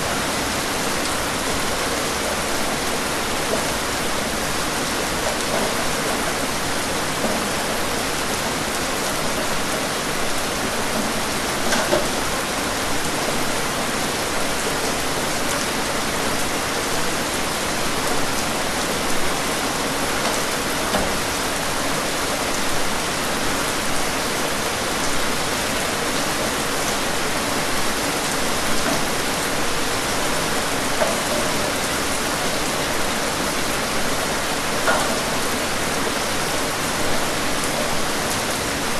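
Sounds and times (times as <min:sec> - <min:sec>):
steady rain falling: 0:00.0 - 0:38.9.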